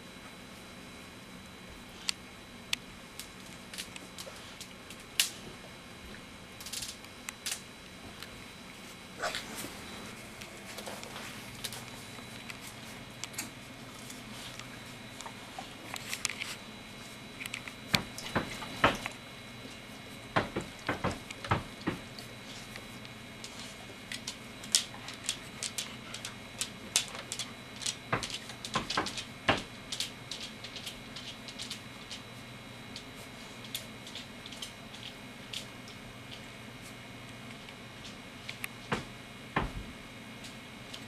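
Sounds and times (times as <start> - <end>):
puppies jostling plastic dish: 20.4 - 32.2, 32.9 - 36.5.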